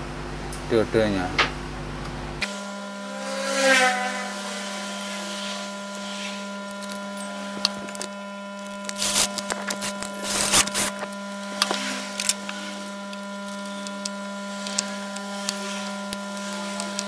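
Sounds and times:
steady electrical hum: 0.0s - 17.0s
clicks and rubbing of wires: 6.6s - 17.0s.

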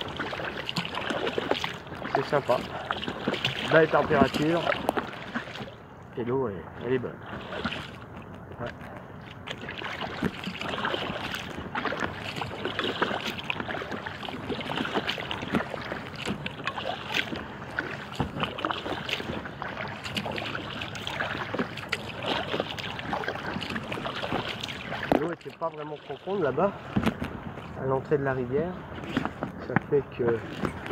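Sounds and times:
water splashing against kayak hull: 0.0s - 30.9s.

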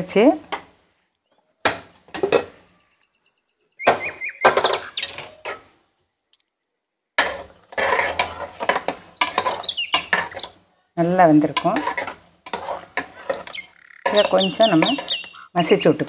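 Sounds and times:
high bird chirps: 1.3s - 5.4s, 9.2s - 10.6s, 12.9s - 16.0s
metal lid clanking and scraping: 7.2s - 10.6s, 11.4s - 15.1s
metal spoon scraping a pot: 7.2s - 10.6s, 11.4s - 15.5s.

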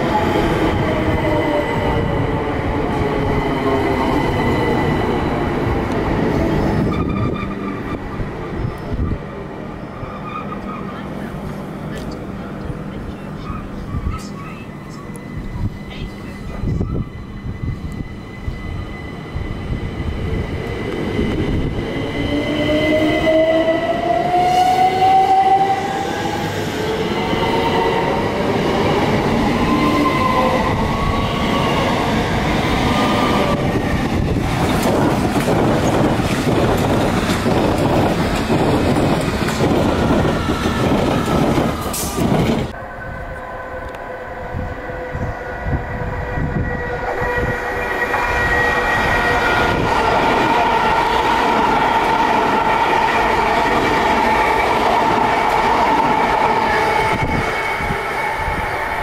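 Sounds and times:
train wheels clattering on rails: 33.4s - 42.8s.

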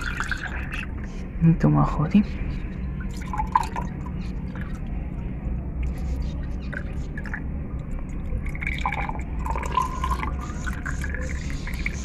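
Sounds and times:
steady low hum: 0.0s - 12.0s
water pouring and splashing: 6.8s - 12.0s.

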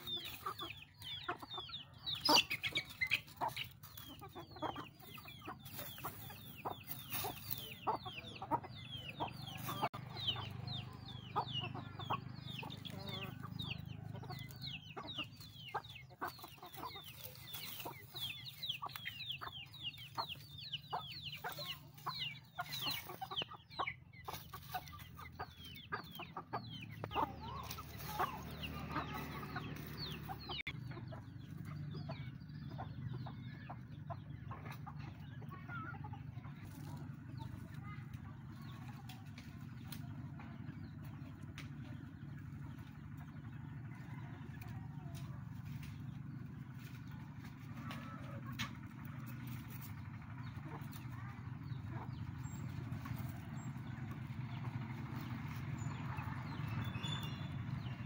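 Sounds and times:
chickens clucking: 0.0s - 58.0s
chicks peeping: 0.0s - 58.0s.

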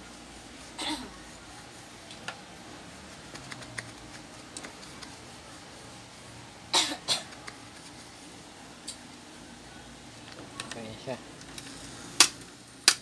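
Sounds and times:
person coughing: 0.8s - 1.2s, 6.7s - 7.3s.

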